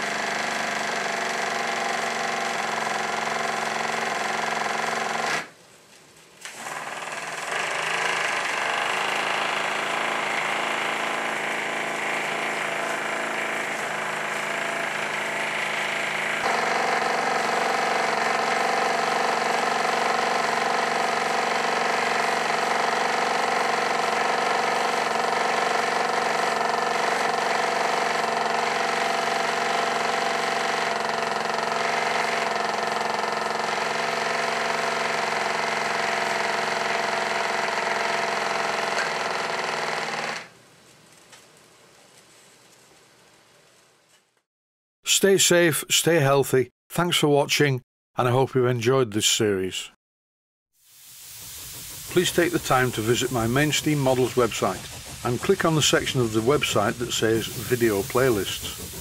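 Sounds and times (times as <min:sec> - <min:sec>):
gas burner: 0:50.8 - 0:59.0
small steam engine rattling: 0:51.3 - 0:59.0.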